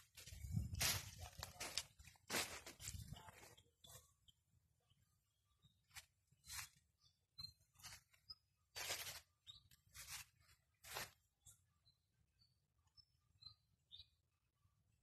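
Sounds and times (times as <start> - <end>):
footsteps crunching through dry leaves: 0.0 - 3.5, 6.0 - 6.8, 7.8 - 11.2.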